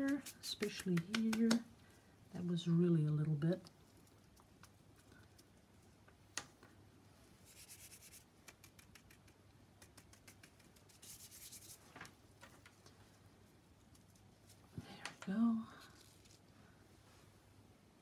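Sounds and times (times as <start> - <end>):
gloved fingers rubbing glitter: 0.0 - 1.6, 7.4 - 11.9.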